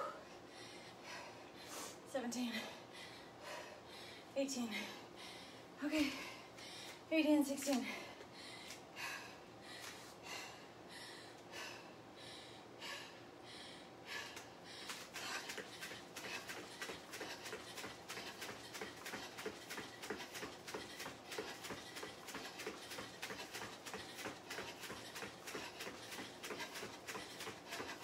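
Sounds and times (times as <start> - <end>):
hard breathing: 0.0 - 7.1, 7.8 - 28.0
bare feet on foam mats: 14.1 - 28.0.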